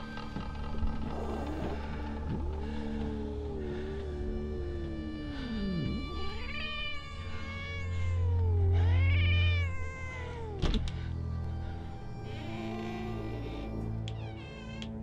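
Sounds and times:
low droning music: 0:00.0 - 0:15.0
cat meowing: 0:04.6 - 0:10.6, 0:12.2 - 0:15.0.

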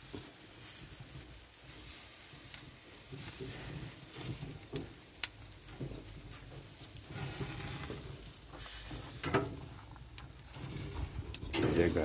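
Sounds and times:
chicken sizzling on a grill: 0:00.0 - 0:12.0.

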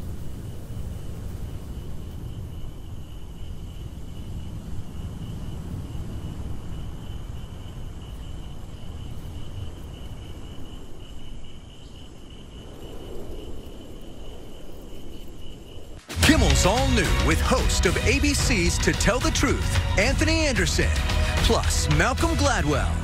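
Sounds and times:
crickets trilling: 0:00.0 - 0:16.1.

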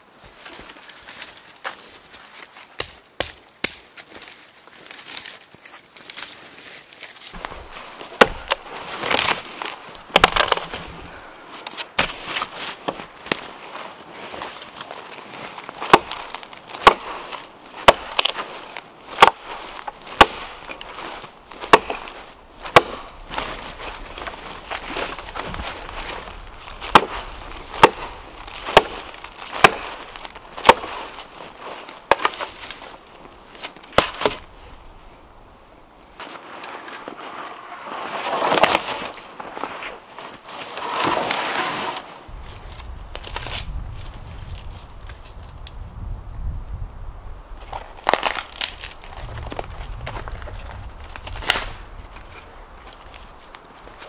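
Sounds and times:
branches rustling: 0:00.0 - 0:54.0
hatchet chopping wood: 0:02.8 - 0:03.8, 0:08.2 - 0:09.4, 0:10.1 - 0:10.7, 0:15.8 - 0:17.2, 0:17.8 - 0:18.4, 0:19.2 - 0:20.6, 0:21.6 - 0:22.1, 0:22.7 - 0:23.1, 0:26.8 - 0:31.0, 0:33.9 - 0:34.4.

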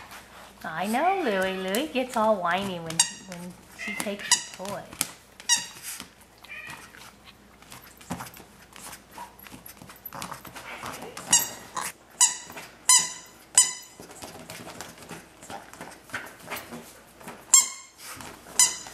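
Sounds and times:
dog chewing and rustling: 0:00.0 - 0:18.9
high toy squeaks: 0:02.9 - 0:04.6, 0:11.2 - 0:14.0, 0:17.5 - 0:18.0, 0:18.6 - 0:18.9.

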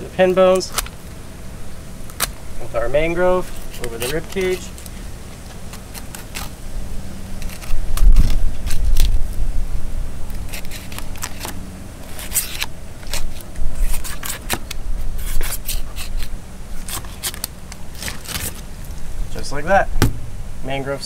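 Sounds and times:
knife scraping through fish scales: 0:10.4 - 0:18.6.

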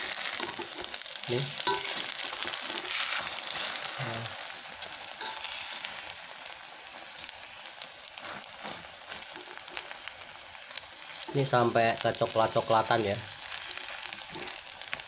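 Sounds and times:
omelette sizzling in hot oil: 0:00.0 - 0:15.0
metal spatula scraping and tapping pan: 0:00.3 - 0:01.0, 0:01.6 - 0:03.3, 0:05.2 - 0:05.5.

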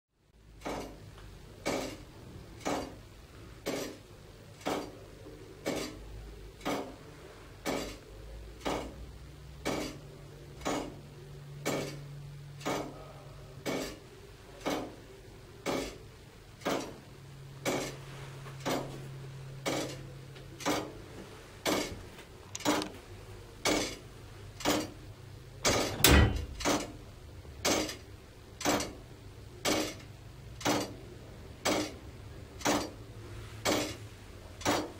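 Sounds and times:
clock mechanism ticking: 0:00.6 - 0:01.0, 0:01.6 - 0:02.0, 0:02.6 - 0:03.0, 0:04.6 - 0:05.0, 0:06.6 - 0:07.0, 0:07.6 - 0:08.0, 0:08.6 - 0:09.0, 0:09.6 - 0:10.0, 0:10.6 - 0:11.0, 0:11.6 - 0:13.0, 0:13.6 - 0:14.0, 0:14.6 - 0:15.0, 0:15.6 - 0:16.0, 0:16.6 - 0:17.0, 0:17.6 - 0:18.0, 0:18.6 - 0:19.0, 0:19.6 - 0:20.0, 0:20.6 - 0:20.9, 0:21.6 - 0:21.9, 0:22.5 - 0:22.9, 0:23.6 - 0:24.0, 0:24.6 - 0:25.0, 0:25.6 - 0:27.0, 0:27.6 - 0:29.0, 0:29.6 - 0:31.0, 0:31.6 - 0:32.0, 0:32.6 - 0:33.0, 0:33.6 - 0:34.0, 0:34.6 - 0:34.9
heavier knock: 0:25.7 - 0:26.8.

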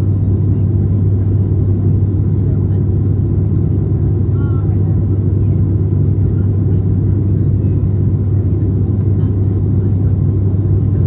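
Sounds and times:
airplane cabin drone: 0:00.0 - 0:11.0.

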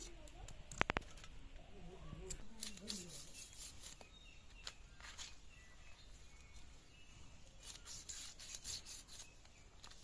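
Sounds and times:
birds chirping faintly: 0:00.0 - 0:10.0
knife scraping chicken skin: 0:02.6 - 0:04.1, 0:07.6 - 0:09.4.

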